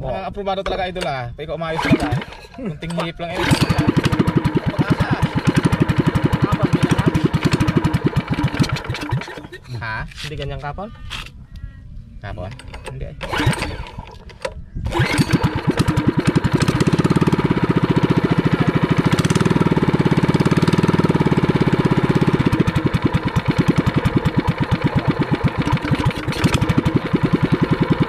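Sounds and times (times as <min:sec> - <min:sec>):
boat engine chugging: 0:01.8 - 0:09.7, 0:14.9 - 0:28.0.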